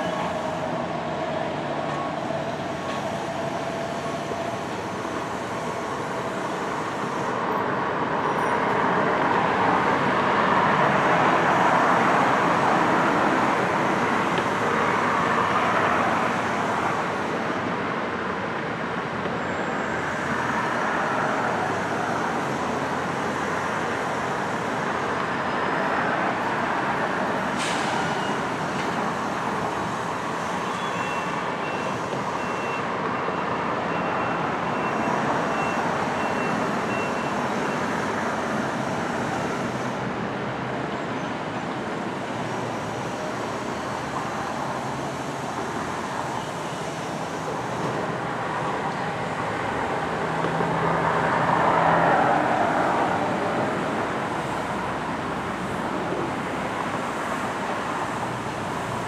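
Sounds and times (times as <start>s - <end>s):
construction machinery and vehicle noise: 0.0s - 59.0s
faint reversing beeper: 30.6s - 37.8s.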